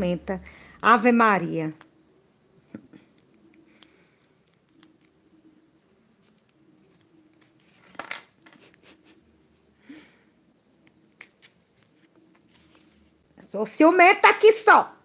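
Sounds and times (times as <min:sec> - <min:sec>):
rustling scrape: 0:06.2 - 0:08.7, 0:11.4 - 0:13.2.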